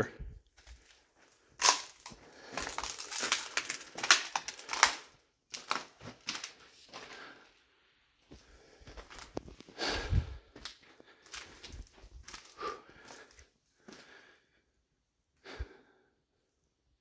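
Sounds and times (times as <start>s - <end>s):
footsteps crunching on grit: 0.6s - 7.4s, 8.2s - 14.1s.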